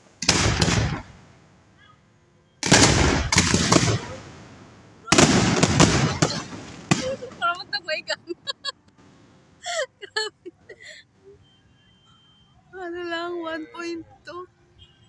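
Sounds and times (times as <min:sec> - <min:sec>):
fireworks bangs and crackling: 0:00.1 - 0:01.5, 0:02.6 - 0:07.8.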